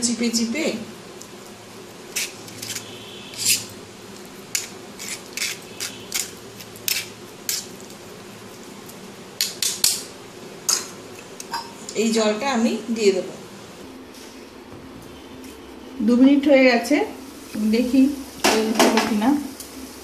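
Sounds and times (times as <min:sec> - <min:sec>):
spoon scraping metal strainer: 0:02.2 - 0:03.7.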